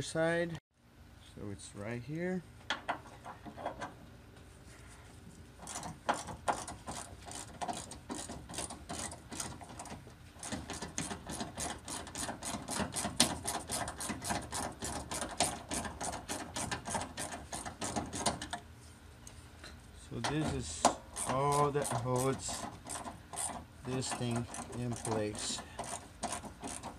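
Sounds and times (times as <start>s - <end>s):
hand ratchet clicking: 5.6s - 18.6s, 20.2s - 26.9s.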